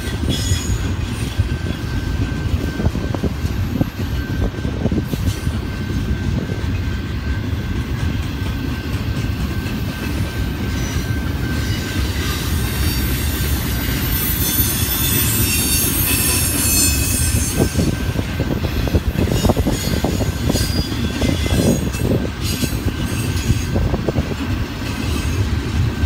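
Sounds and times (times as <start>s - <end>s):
train cars rumbling on rails: 0.0s - 26.0s
wheel squeal: 10.7s - 23.8s.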